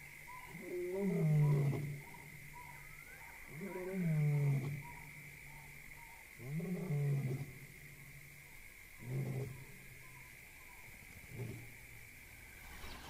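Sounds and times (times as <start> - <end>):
lion roaring: 0.5 - 2.3, 3.3 - 5.1, 6.4 - 7.9, 9.0 - 9.8.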